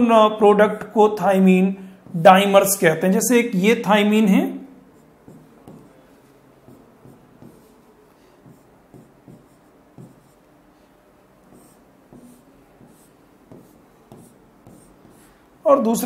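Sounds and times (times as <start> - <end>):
pen scratching strokes: 4.9 - 15.6
pen tapping on screen: 5.2 - 7.8, 8.4 - 10.5, 11.4 - 15.4.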